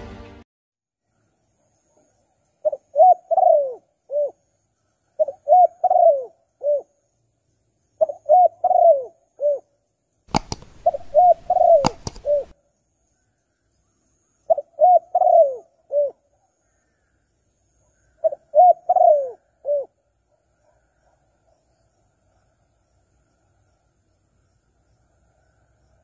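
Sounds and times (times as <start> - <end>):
dove cooing: 2.6 - 4.4, 5.2 - 6.9, 8.0 - 9.7, 10.8 - 12.5, 14.5 - 16.2, 18.2 - 20.0
hiss with sharp clicks: 11.8 - 12.3.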